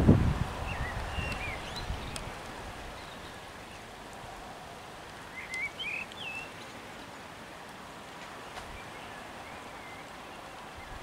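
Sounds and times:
rain hissing: 0:00.0 - 0:11.0
bird chirping: 0:00.6 - 0:02.3, 0:05.3 - 0:06.7.

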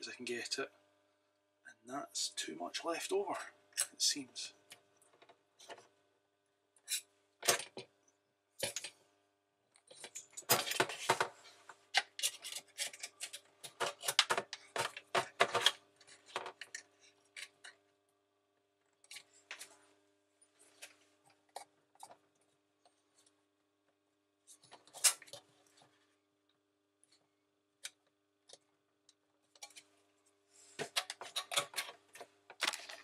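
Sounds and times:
wire tool clicking and scraping: 0:11.9 - 0:15.8.

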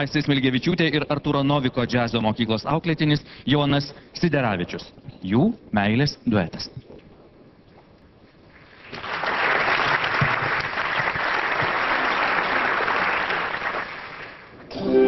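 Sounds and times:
audience applauding: 0:08.6 - 0:15.0.

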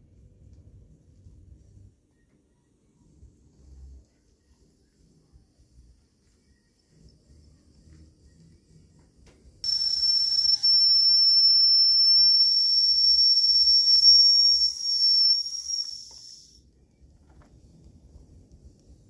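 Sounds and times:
high-pitched steam whistle: 0:09.7 - 0:16.6.

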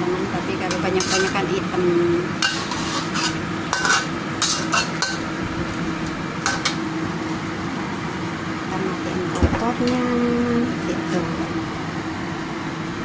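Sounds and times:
metal spatula scraping wok: 0:00.7 - 0:01.5, 0:02.4 - 0:05.3, 0:06.4 - 0:06.8.

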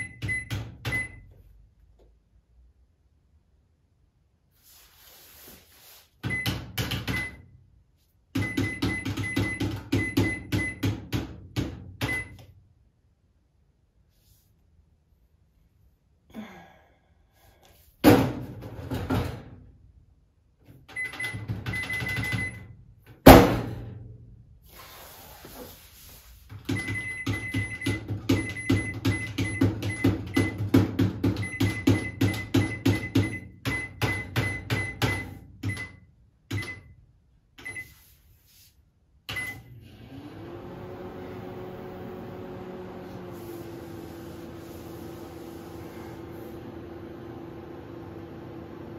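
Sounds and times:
microwave oven humming: 0:39.4 - 0:48.9.

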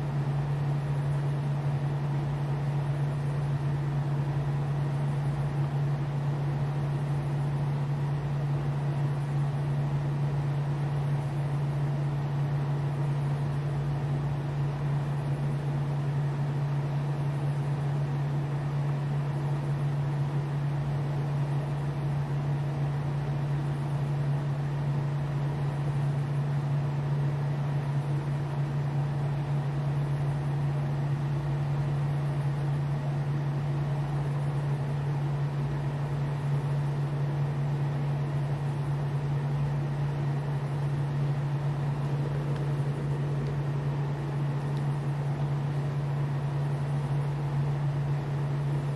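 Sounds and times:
turntable motor humming: 0:29.3 - 0:48.9.

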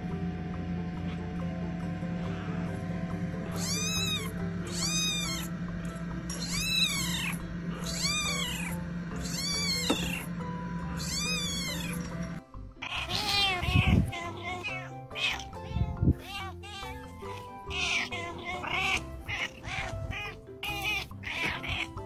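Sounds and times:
background music: 0:00.0 - 0:22.0
adult cat meowing: 0:03.5 - 0:05.5, 0:06.3 - 0:10.3, 0:10.9 - 0:12.0, 0:12.8 - 0:15.4, 0:17.7 - 0:21.9
kitten meowing: 0:03.5 - 0:05.5, 0:06.3 - 0:10.3, 0:10.9 - 0:12.0, 0:12.8 - 0:22.0.

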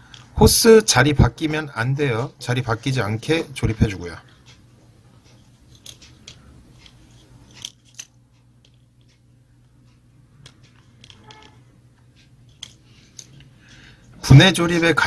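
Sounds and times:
plastic parts clicking: 0:00.0 - 0:00.4, 0:05.3 - 0:09.2, 0:10.4 - 0:11.6, 0:12.2 - 0:13.9.

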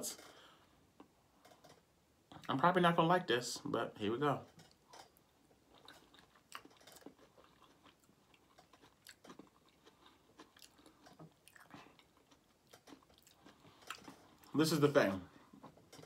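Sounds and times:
close-up chewing: 0:04.7 - 0:14.6.

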